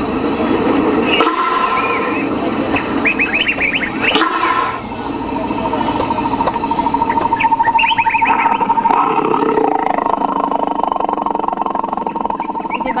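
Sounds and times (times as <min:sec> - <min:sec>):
steady pulsing tone: 0:00.0 - 0:13.0
rough rapidly pulsing call: 0:01.0 - 0:13.0
loudspeaker playing animal calls: 0:03.4 - 0:04.8, 0:06.8 - 0:13.0.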